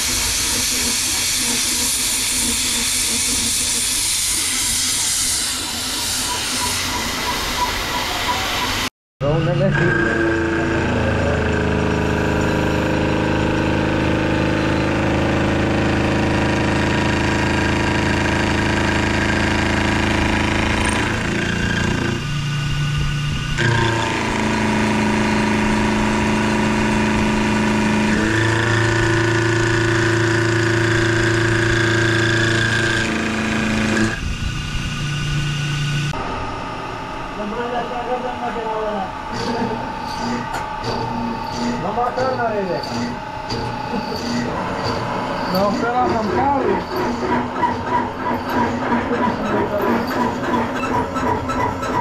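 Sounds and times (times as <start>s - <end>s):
milling machine hum and whine: 0.0s - 52.0s
metal cutting chatter: 37.4s - 52.0s.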